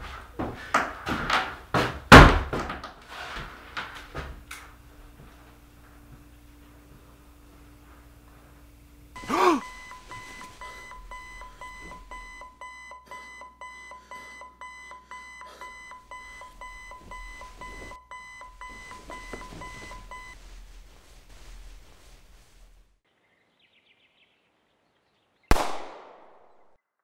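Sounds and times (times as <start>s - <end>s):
alarm clock beeping: 9.2s - 20.4s
pistol shot: 25.5s - 26.7s.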